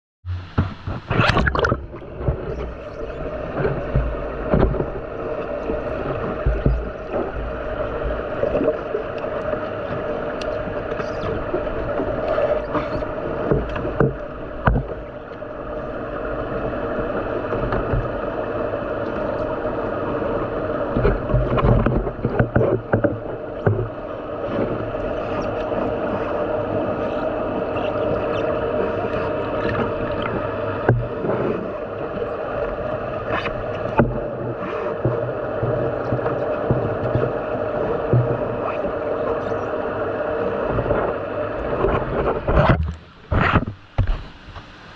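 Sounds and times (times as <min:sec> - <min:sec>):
underwater knocks: 0:00.3 - 0:09.2, 0:09.9 - 0:15.4, 0:20.9 - 0:25.7, 0:29.1 - 0:31.6, 0:33.3 - 0:37.4, 0:38.0 - 0:39.0
underwater hum and low drone: 0:00.3 - 0:44.9
bubbling bursts: 0:00.4 - 0:09.1.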